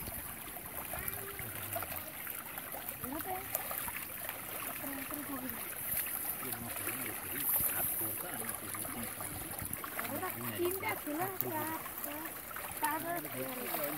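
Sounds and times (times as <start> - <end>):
muddy water sloshing: 0.0 - 13.9
faint voices: 0.8 - 2.1, 6.4 - 13.9.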